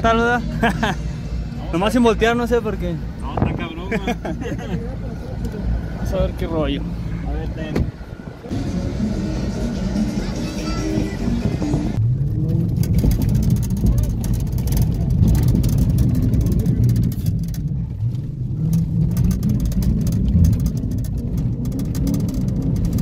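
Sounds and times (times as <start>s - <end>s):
car engine running hard: 0.0s - 23.0s
dirt crackling against car: 12.0s - 23.0s
tyres scrabbling on dirt: 12.0s - 23.0s.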